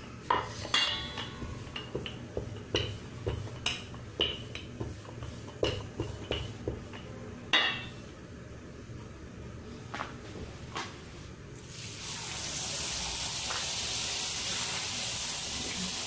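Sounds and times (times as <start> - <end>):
rolling pin rolling dough: 0.0 - 8.0
rolling pin clacking on tile: 0.4 - 7.9.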